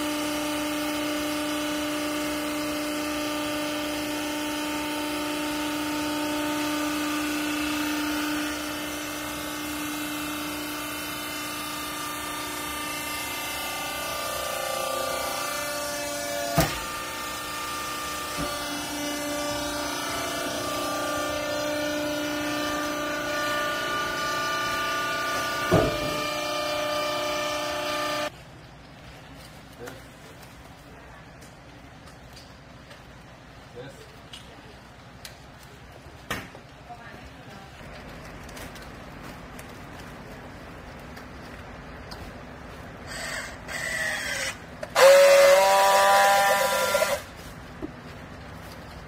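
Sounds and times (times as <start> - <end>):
hydraulic pump whining: 0.0 - 28.3, 42.4 - 48.0.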